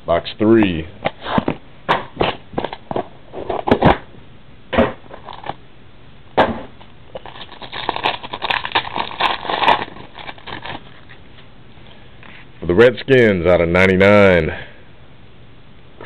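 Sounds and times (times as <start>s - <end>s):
foil wrapper crinkling and tearing: 5.2s - 5.6s, 7.1s - 11.2s.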